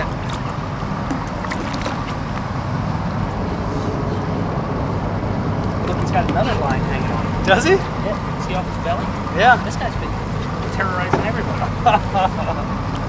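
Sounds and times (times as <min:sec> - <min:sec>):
wind on microphone: 0:00.0 - 0:09.4
boat engine running: 0:00.0 - 0:13.0
water splashing against hull: 0:00.0 - 0:13.0.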